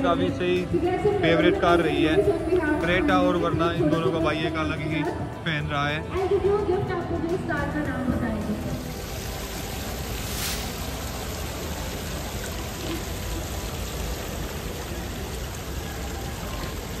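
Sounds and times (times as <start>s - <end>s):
busy exhibition hall background: 0.0s - 17.0s
brief swish: 10.3s - 10.8s.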